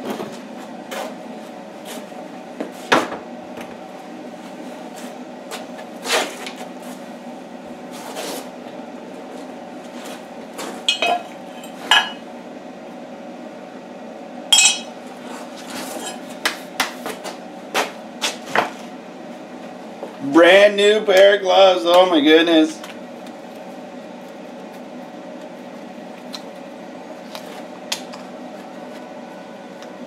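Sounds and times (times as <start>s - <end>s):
steady low hum: 0.0s - 30.0s
metal tools clinking: 10.9s - 12.2s, 14.6s - 14.9s.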